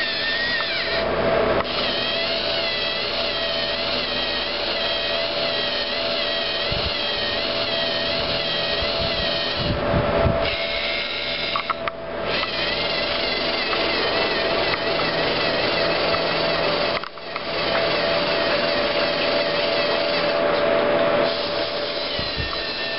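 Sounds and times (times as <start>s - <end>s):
servo motors whining: 0.0s - 22.9s
clicks: 11.5s - 12.6s, 16.9s - 17.9s.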